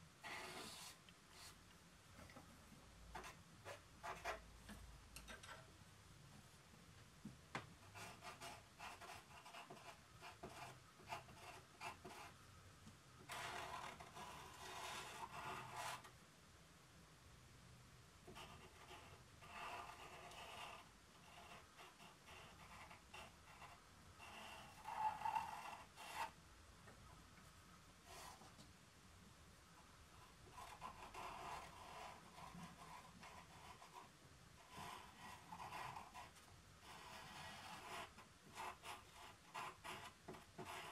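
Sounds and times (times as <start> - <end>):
pencil scratching on paper: 0.2 - 1.6, 3.1 - 4.4, 7.8 - 12.4, 13.2 - 16.1, 18.3 - 26.4, 30.2 - 40.9.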